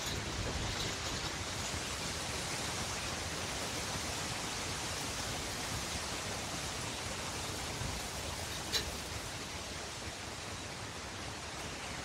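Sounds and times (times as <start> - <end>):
steady rushing nature noise: 0.0 - 12.0.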